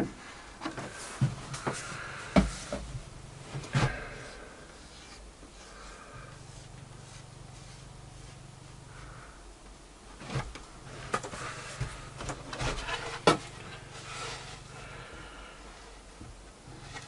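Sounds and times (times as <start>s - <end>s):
plywood scraping on workbench: 10.3s - 14.7s.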